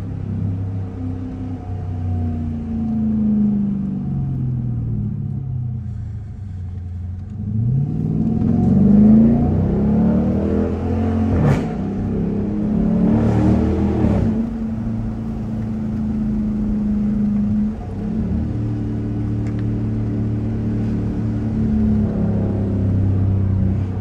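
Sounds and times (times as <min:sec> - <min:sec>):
car engine exhaust accelerating: 0:00.0 - 0:24.0.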